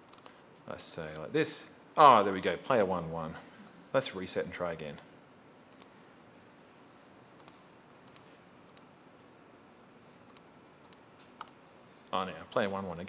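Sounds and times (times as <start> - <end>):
computer clicks: 0.0 - 0.3, 5.7 - 5.9, 7.4 - 8.9, 10.2 - 12.2.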